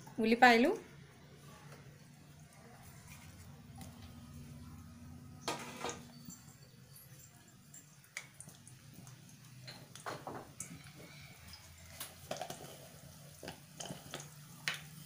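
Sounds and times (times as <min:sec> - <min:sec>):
onions crackling in hot oil: 0:05.4 - 0:15.0.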